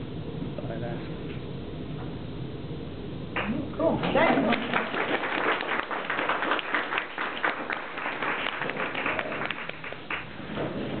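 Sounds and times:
audience applauding: 3.4s - 10.3s.

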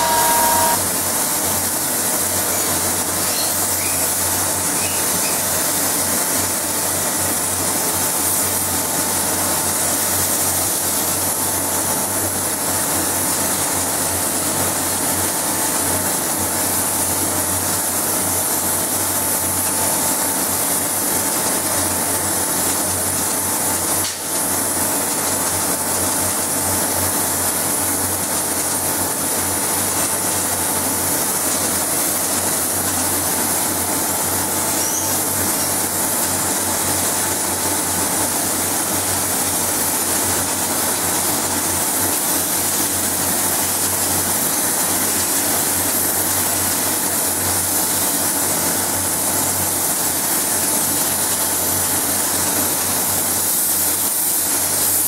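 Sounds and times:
extraction fan hum: 0.0s - 12.6s
spray gun air hiss: 42.1s - 55.0s.

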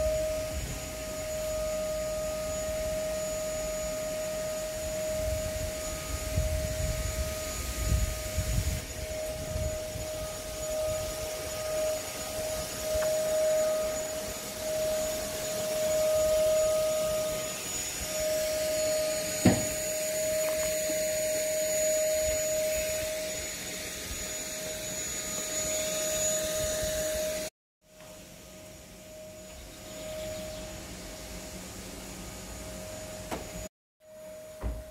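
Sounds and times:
motor drone with whine: 0.0s - 34.9s
single knock: 19.4s - 19.8s.

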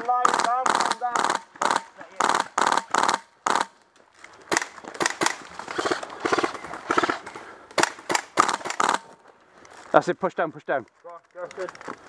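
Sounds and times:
airsoft guns firing: 0.0s - 3.8s, 4.5s - 9.2s.

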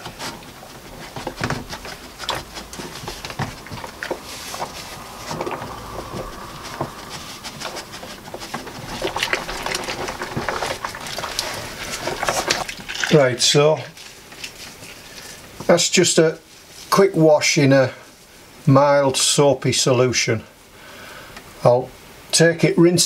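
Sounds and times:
water sloshing and splashing: 0.0s - 14.7s.

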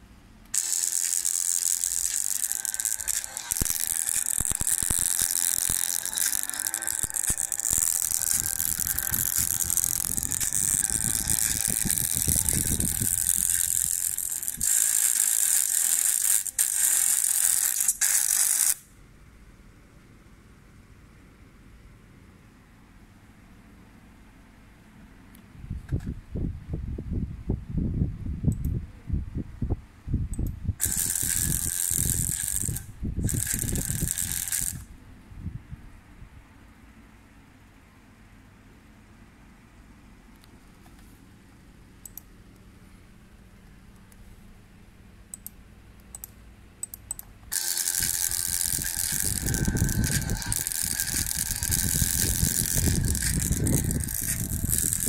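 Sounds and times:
laptop speaker crackling music: 0.5s - 18.8s, 30.8s - 34.9s, 47.5s - 55.0s.

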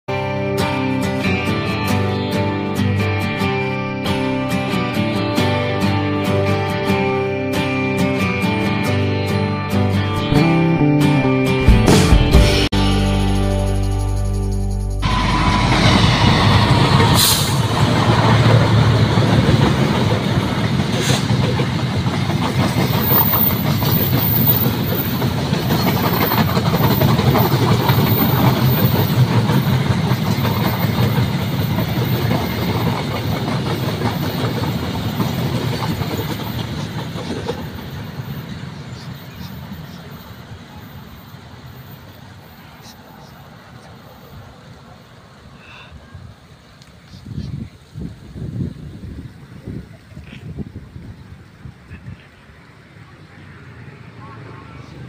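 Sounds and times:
train rumbling past on rails: 15.0s - 46.8s, 47.7s - 55.0s.

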